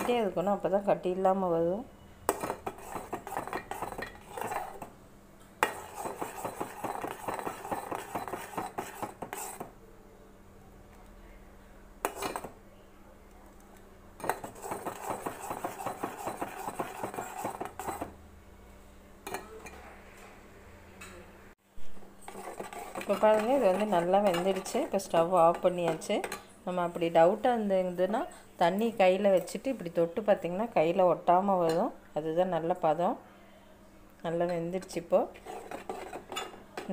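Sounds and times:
spoon stirring and scraping pot: 0:02.3 - 0:04.9, 0:05.6 - 0:09.7, 0:12.0 - 0:12.6, 0:14.2 - 0:18.2, 0:22.0 - 0:26.5, 0:34.4 - 0:36.9.

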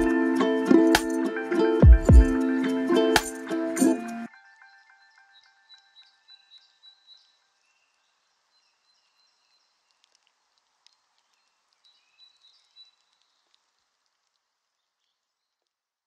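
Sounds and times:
small clicks: 0:09.8 - 0:12.0.

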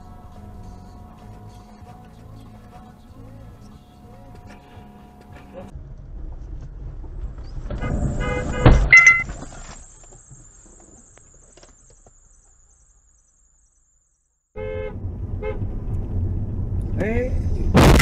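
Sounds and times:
low vehicle rumble: 0:00.0 - 0:13.6, 0:14.6 - 0:18.0
loud thump: 0:07.7 - 0:09.3, 0:17.7 - 0:18.0.

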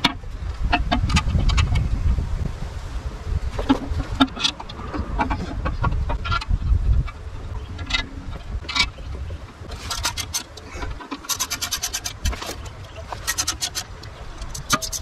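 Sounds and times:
hand ratchet clicking: 0:09.8 - 0:15.0.

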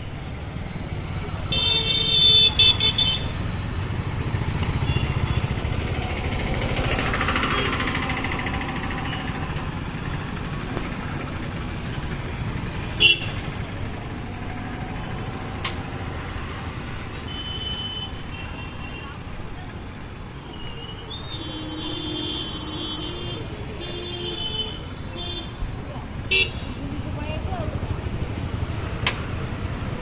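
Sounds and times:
passing vehicle engines: 0:00.0 - 0:24.0, 0:24.8 - 0:30.0
vehicle horn toot: 0:21.3 - 0:25.4.

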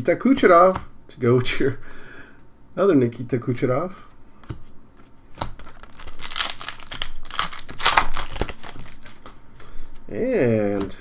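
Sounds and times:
foil wrapper crinkling and tearing: 0:05.6 - 0:09.3.

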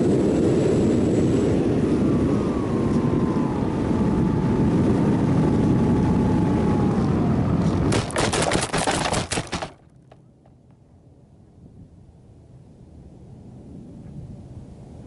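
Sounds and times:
wind rush: 0:00.0 - 0:09.7.

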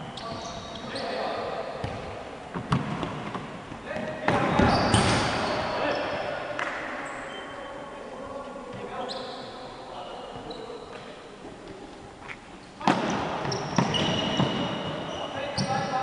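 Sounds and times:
shoes squeaking on wooden floor: 0:00.0 - 0:01.3, 0:04.4 - 0:06.0, 0:08.8 - 0:09.6, 0:11.7 - 0:15.8.

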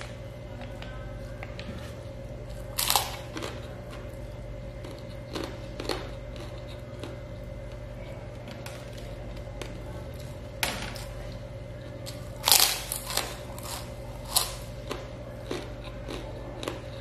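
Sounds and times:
steady low hum: 0:00.0 - 0:17.0
person chewing food: 0:00.6 - 0:10.4, 0:12.0 - 0:17.0
crunch of food: 0:02.5 - 0:04.2, 0:12.0 - 0:17.0.

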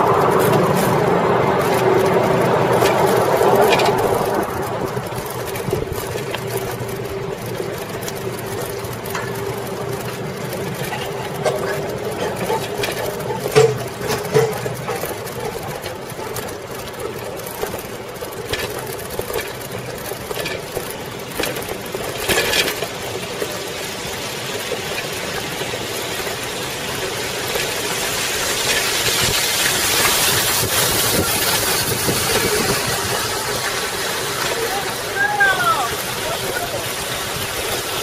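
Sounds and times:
bicycle chain whir and rattle: 0:00.0 - 0:38.0
wind noise on microphone: 0:28.2 - 0:33.6.

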